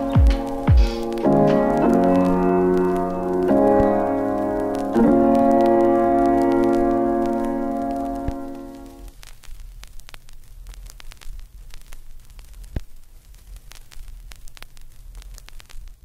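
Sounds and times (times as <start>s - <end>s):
organ chord: 0.0s - 9.1s
crackling static clicks: 0.0s - 16.0s.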